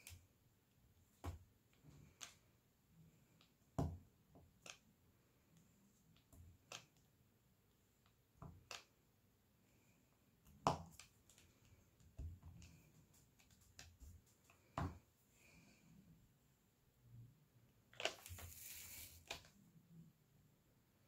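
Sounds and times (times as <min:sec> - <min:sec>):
pen clicks and taps: 0:08.0 - 0:09.0.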